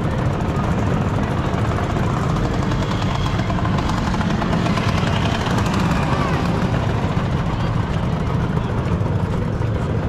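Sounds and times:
scooter engines running: 0:00.0 - 0:10.0.

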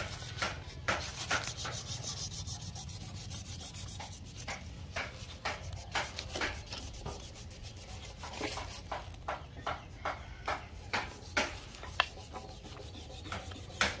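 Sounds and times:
sharp knocks on wood: 0:00.0 - 0:01.8, 0:04.4 - 0:06.7, 0:08.2 - 0:11.7, 0:13.2 - 0:14.0
hand tools scraping wood: 0:00.0 - 0:14.0.

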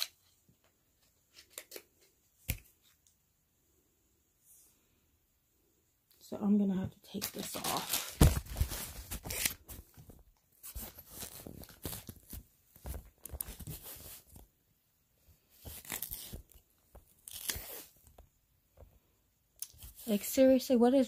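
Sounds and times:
rustling and crinkling handling noise: 0:07.0 - 0:14.5, 0:15.2 - 0:18.9.

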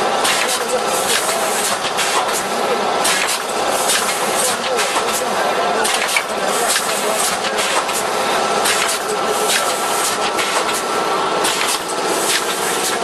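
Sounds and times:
production line machinery running: 0:00.0 - 0:13.0
irregular mechanical clicks: 0:08.6 - 0:13.0.

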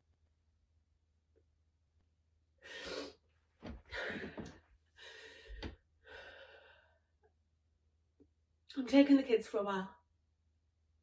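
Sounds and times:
woman breathing heavily: 0:02.6 - 0:07.1.

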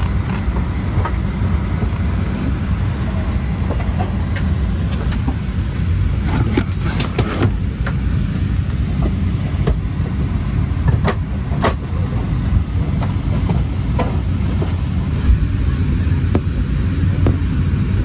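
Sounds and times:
airliner cabin rumble: 0:00.0 - 0:18.0
scattered clicks and knocks: 0:06.3 - 0:08.0, 0:10.8 - 0:11.9.

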